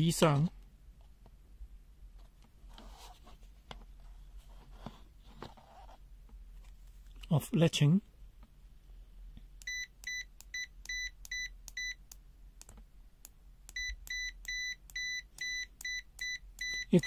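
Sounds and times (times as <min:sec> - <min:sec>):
multimeter short high beeps: 0:09.6 - 0:12.0, 0:13.7 - 0:17.0.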